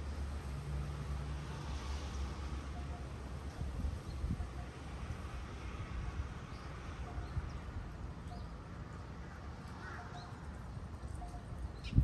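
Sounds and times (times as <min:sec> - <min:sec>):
wind rumbling on microphone: 0:03.5 - 0:08.0, 0:11.7 - 0:12.0.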